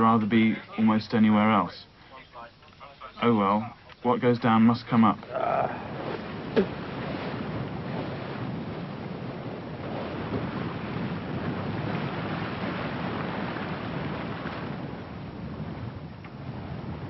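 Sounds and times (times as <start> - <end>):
sea waves: 4.8 - 17.0
wind buffeting microphone: 5.2 - 17.0.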